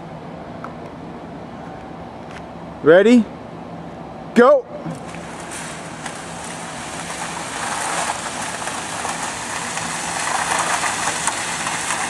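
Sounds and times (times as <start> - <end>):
metal sled scraping concrete: 4.9 - 12.0.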